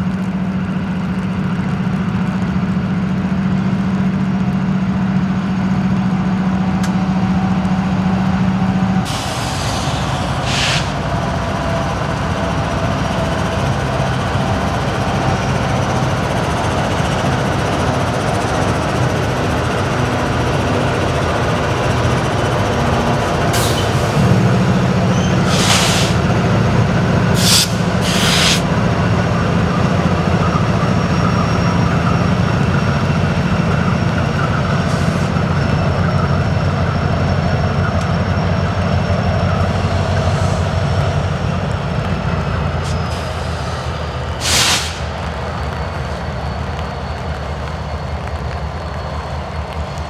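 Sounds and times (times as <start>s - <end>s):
locomotive engines droning: 0.0s - 50.0s
bursts of hiss: 44.4s - 45.1s.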